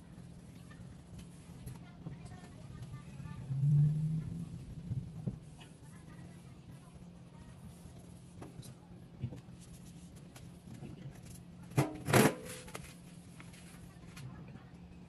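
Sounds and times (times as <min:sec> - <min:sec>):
low hum: 0:00.0 - 0:08.2.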